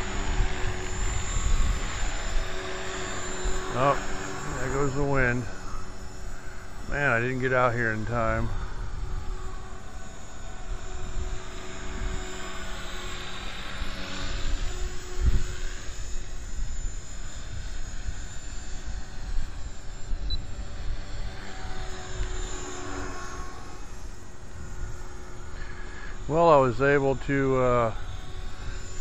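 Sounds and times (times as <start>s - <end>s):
wind on microphone: 0.0s - 21.4s
electric helicopter motor whining: 0.0s - 29.0s.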